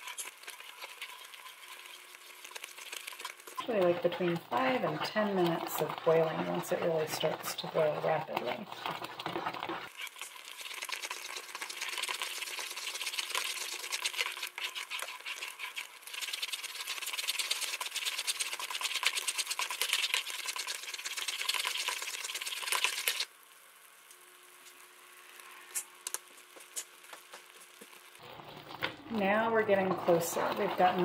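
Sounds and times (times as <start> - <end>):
wooden spoon stirring: 0.0 - 23.3, 26.0 - 31.0
bubbles popping in boiling pot: 0.0 - 23.4, 25.7 - 31.0.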